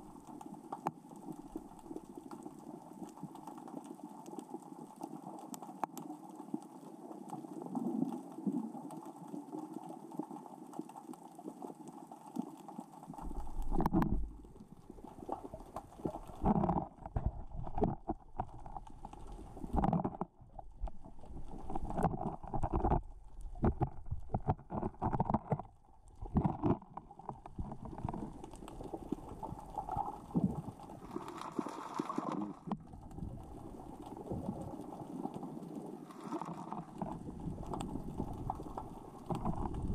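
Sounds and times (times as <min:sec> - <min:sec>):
underwater rocks clattering: 0:13.1 - 0:39.9
low underwater rush: 0:25.8 - 0:39.9.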